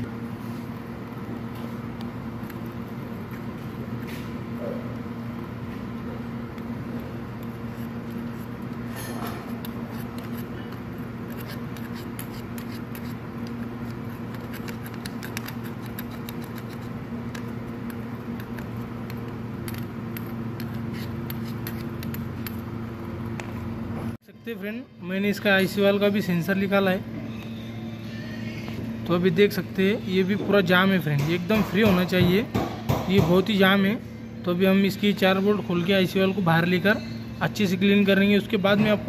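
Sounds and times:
steady background hum: 0.0s - 39.0s
screwdriver scraping metal: 7.3s - 22.6s.

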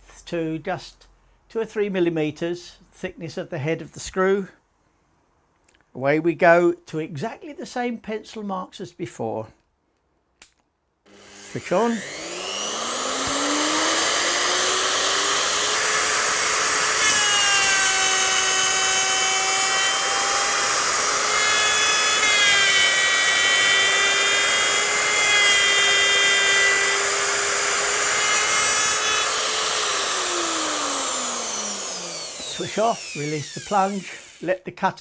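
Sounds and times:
router whining: 11.1s - 34.6s.

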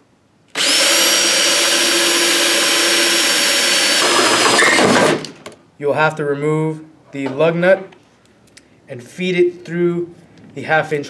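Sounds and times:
cordless drill whining: 0.5s - 5.3s.

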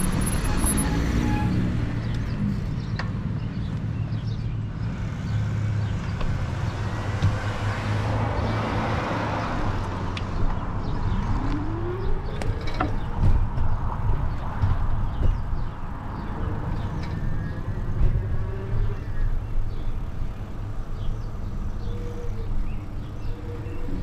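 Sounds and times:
road traffic rumble: 0.0s - 24.0s.

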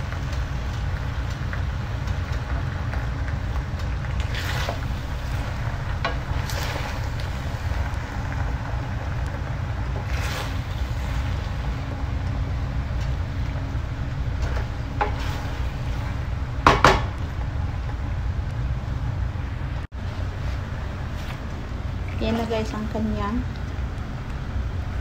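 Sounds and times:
wooden spoon stirring in frying pan: 0.0s - 18.1s
low rumble: 0.0s - 25.0s.

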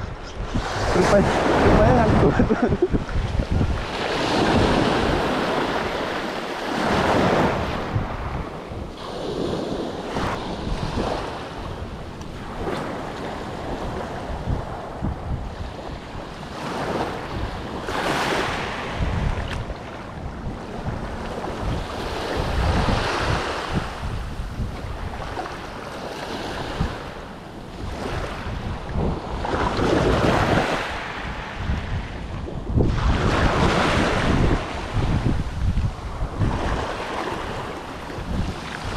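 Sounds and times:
waves breaking on the shore: 0.0s - 38.9s
wind buffeting the microphone: 0.0s - 38.9s.

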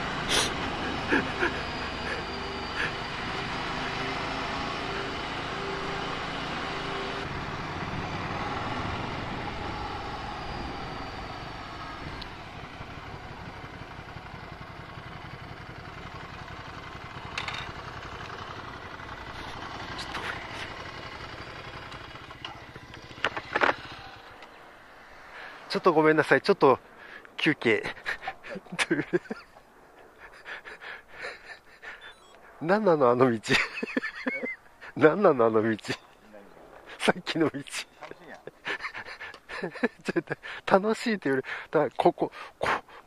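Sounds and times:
motorcycle engine running: 0.8s - 24.6s.

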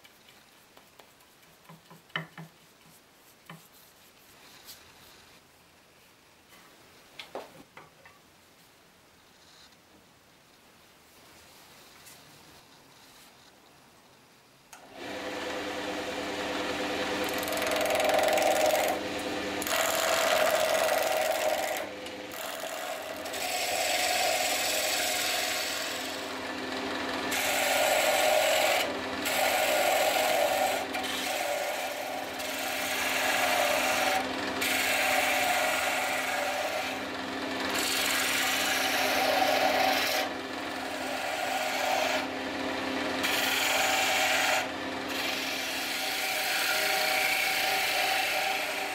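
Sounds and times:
gouge scraping wood: 1.0s - 5.2s, 17.2s - 19.0s, 19.6s - 26.3s, 27.3s - 37.1s, 37.7s - 42.4s, 43.3s - 48.9s
lathe motor hum: 14.9s - 48.9s.

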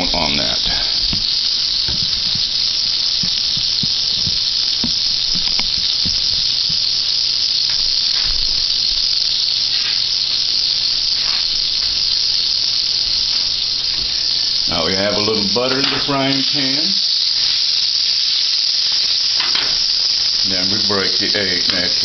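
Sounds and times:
butter sizzling in a frying pan: 0.0s - 22.0s.

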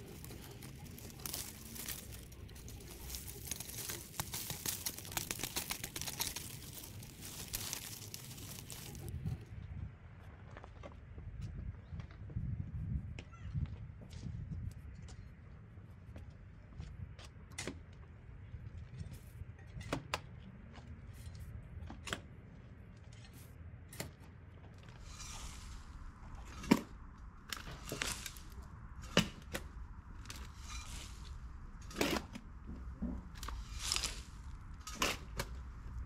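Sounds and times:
rustling plant material: 0.0s - 9.3s, 24.8s - 36.0s.

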